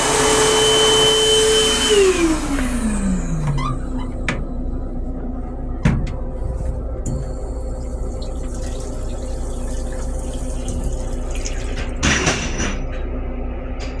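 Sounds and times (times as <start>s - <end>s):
toilet flushing: 7.1s - 12.8s.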